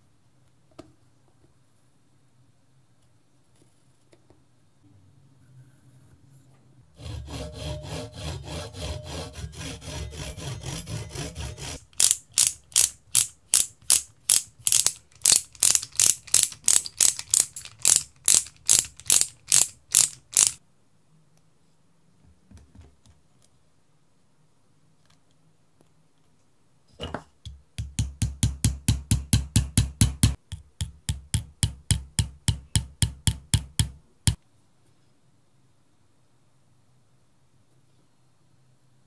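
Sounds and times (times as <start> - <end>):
hand saw cutting wood: 7.0 - 11.8.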